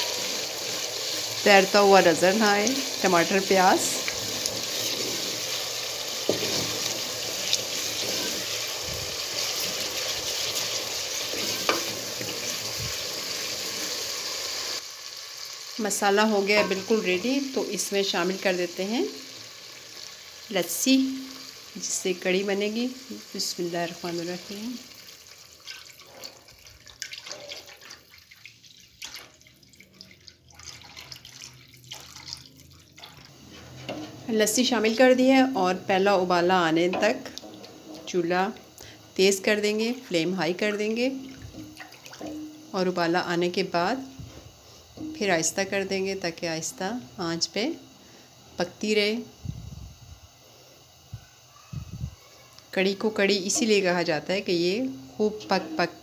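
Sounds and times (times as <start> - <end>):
masala sizzling in oil: 0.0 - 30.4, 31.2 - 49.4, 52.2 - 56.0
liquid pouring and splashing into pot: 24.8 - 34.2, 41.2 - 42.7.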